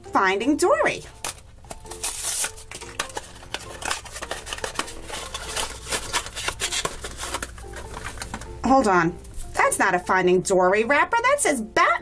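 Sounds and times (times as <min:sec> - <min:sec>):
cardboard crackling and rustling: 0:01.2 - 0:08.5
cardboard box tearing open: 0:01.3 - 0:07.6.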